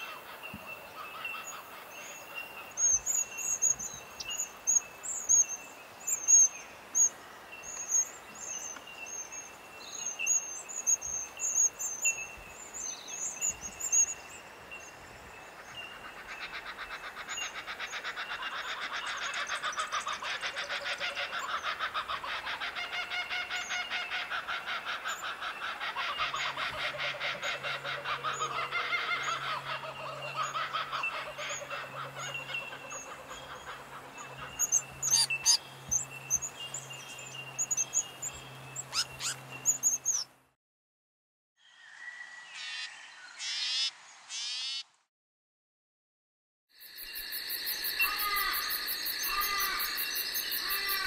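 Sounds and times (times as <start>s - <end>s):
birds chirping: 0.0s - 40.4s, 47.0s - 51.0s
bird calls: 14.8s - 40.3s, 47.0s - 51.0s.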